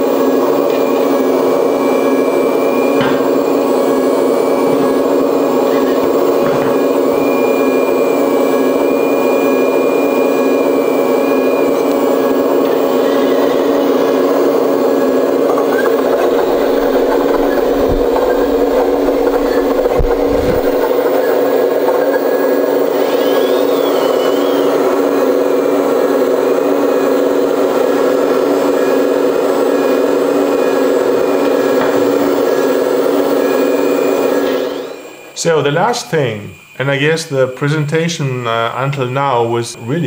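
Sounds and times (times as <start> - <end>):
toy diesel engine sound: 0.0 - 39.6
higher steady whine: 0.0 - 40.0
rising and falling tone: 1.0 - 35.3.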